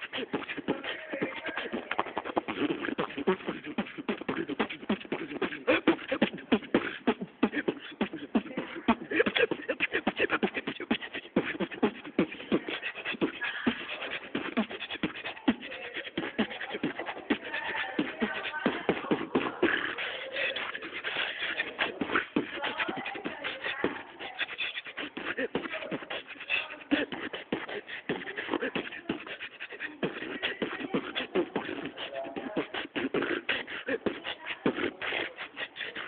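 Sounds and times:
man beatboxing: 0.0s - 36.0s.

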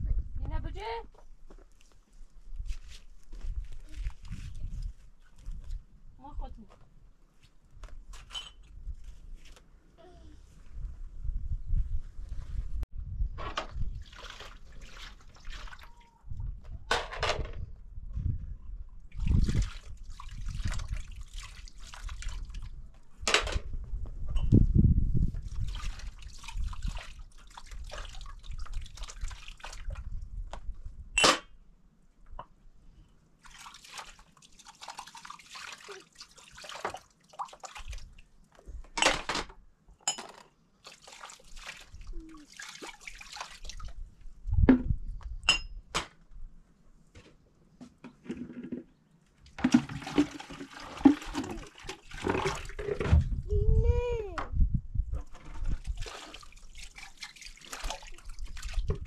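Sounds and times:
water pouring and splashing: 13.8s - 16.1s, 19.1s - 22.9s, 25.2s - 30.2s, 33.4s - 38.4s, 40.8s - 44.1s, 49.5s - 53.4s, 55.3s - 59.0s
glass cups clinking: 45.5s - 45.7s.

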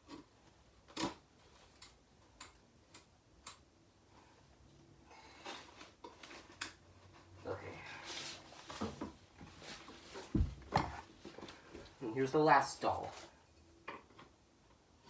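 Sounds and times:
rustling: 5.1s - 12.2s.

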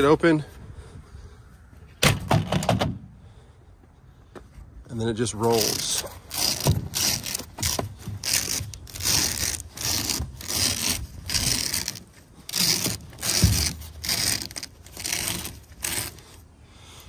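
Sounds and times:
vinyl cover rustling and scraping: 5.5s - 16.2s.

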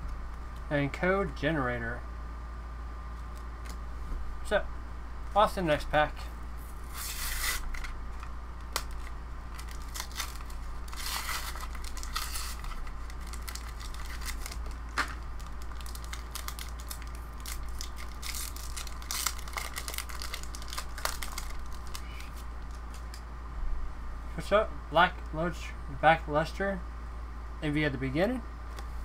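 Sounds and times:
foil wrapper crinkling and tearing: 6.9s - 23.2s.

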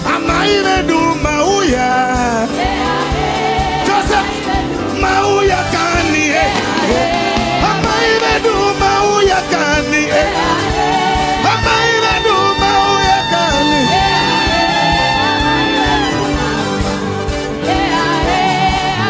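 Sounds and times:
gospel band with singing: 0.0s - 19.0s.

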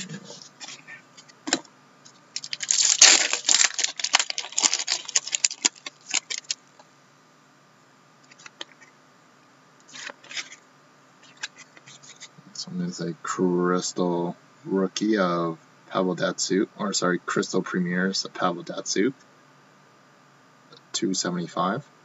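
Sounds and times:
plastic crinkling and rustling: 2.3s - 6.6s, 9.9s - 10.6s.

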